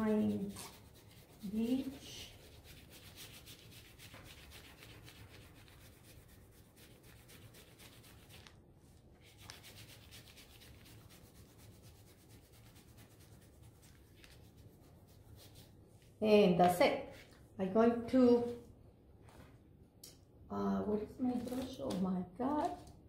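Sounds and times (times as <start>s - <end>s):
crayon scribbling on paper: 0.0s - 8.4s, 9.3s - 15.7s.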